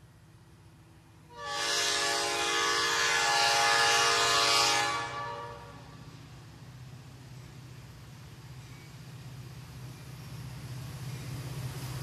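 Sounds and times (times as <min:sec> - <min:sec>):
train horn blast: 0:01.3 - 0:06.0.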